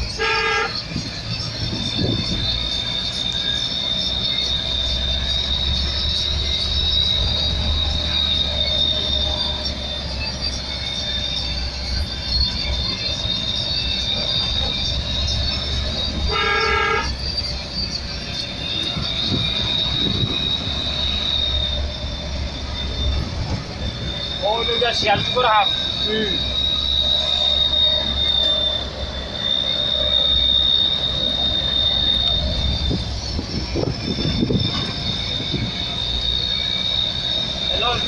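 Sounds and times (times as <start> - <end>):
truck horn: 0.0 - 2.4, 12.5 - 17.4, 24.3 - 38.0
high-pitched whine: 0.0 - 38.0
truck engine and road rumble: 0.0 - 38.0.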